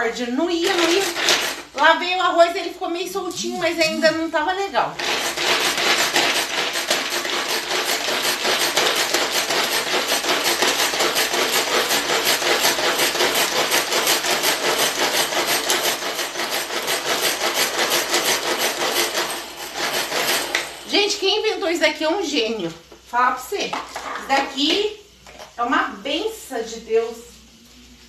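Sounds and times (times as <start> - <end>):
kitchen tool rasping scrape: 0.6 - 1.8, 5.0 - 21.7.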